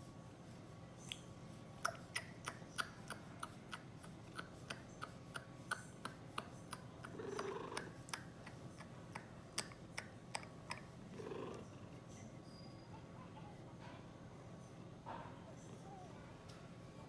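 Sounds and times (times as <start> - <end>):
cat purring: 6.8 - 8.6, 10.6 - 12.3.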